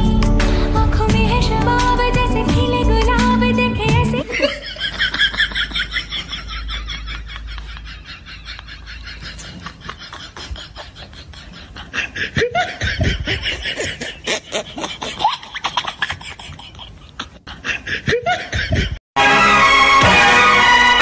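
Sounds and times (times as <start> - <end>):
film music: 0.0 - 4.3, 19.2 - 21.0
snickering laughter: 4.2 - 19.0.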